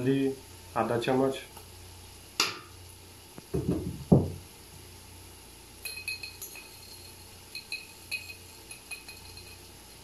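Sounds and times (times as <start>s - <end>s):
dull thumps: 3.5s - 4.4s
teaspoon clinking on spice container: 5.8s - 9.8s.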